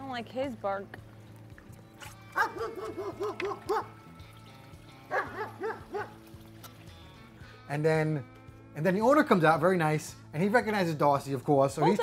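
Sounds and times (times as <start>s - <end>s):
dog barking aggressively: 2.4s - 3.9s, 5.1s - 6.2s.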